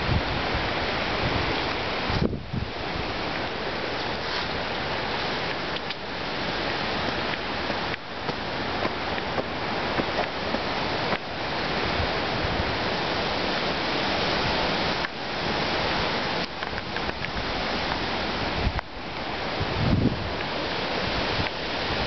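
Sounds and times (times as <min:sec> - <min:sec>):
strong wind rushing: 0:00.0 - 0:03.8, 0:19.4 - 0:22.0.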